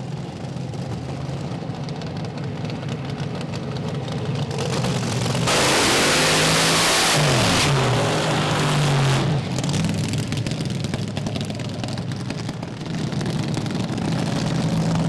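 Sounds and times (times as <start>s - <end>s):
dragster engine revving: 4.5s - 15.0s.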